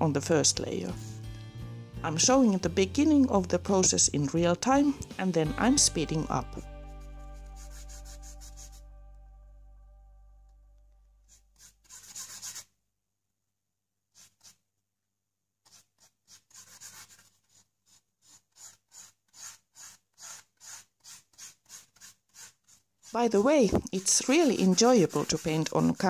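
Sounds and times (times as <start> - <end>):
background music: 0.0 - 11.2
paintbrush strokes on canvas: 0.9 - 1.2, 5.4 - 8.8, 14.1 - 14.6, 15.6 - 26.0.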